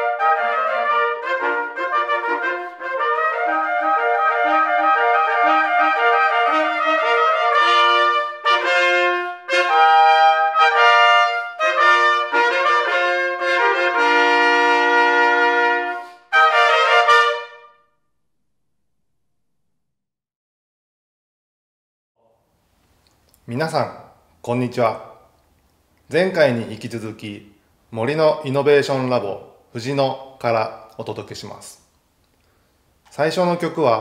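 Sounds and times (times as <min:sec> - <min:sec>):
trumpets playing fanfare: 0:00.0 - 0:17.9.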